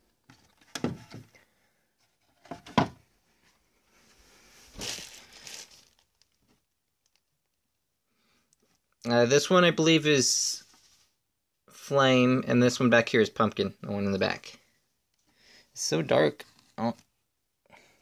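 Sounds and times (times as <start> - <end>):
plastic tub knocks and clunks: 0.6 - 1.3, 2.4 - 3.0.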